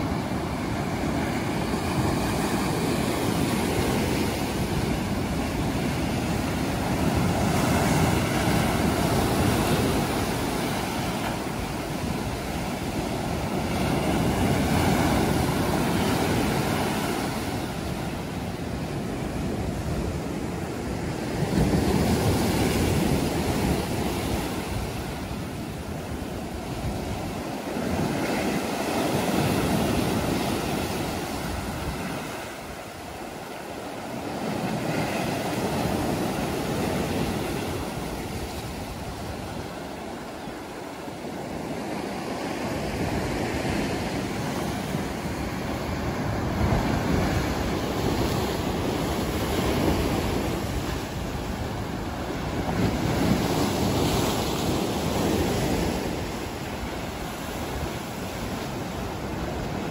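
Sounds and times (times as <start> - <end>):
sea waves breaking on rocks: 0.0 - 59.9.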